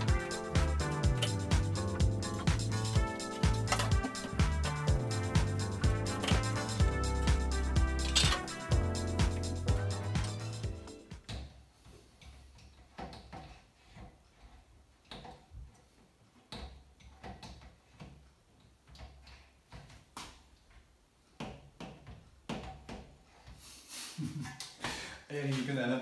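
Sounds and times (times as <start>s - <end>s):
plastic shelf clicking and knocking: 16.4s - 20.4s, 21.4s - 23.2s.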